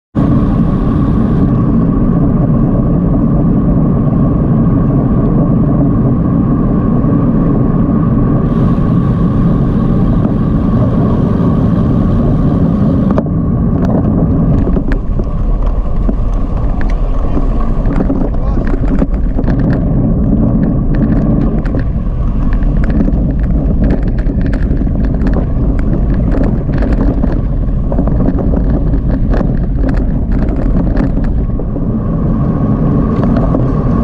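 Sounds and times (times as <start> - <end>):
tyre noise on road: 0.1 - 34.0
wind rushing over microphone: 0.1 - 34.0.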